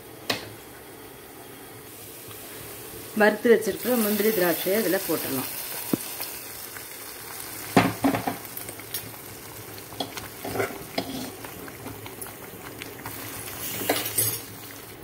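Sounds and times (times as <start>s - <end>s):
pudding sizzling hiss: 0.3s - 15.0s
spoon scraping and knocking pan: 10.0s - 11.4s.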